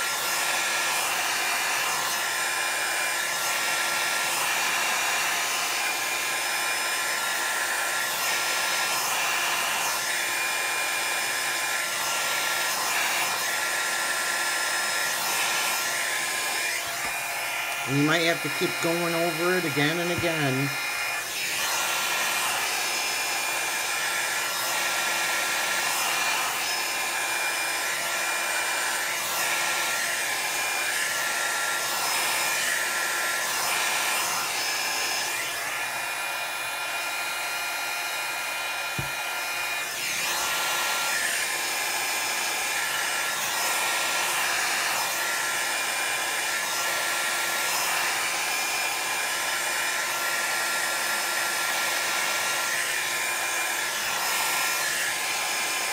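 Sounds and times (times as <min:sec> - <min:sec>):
hot-air blower whining: 0:00.0 - 0:55.9.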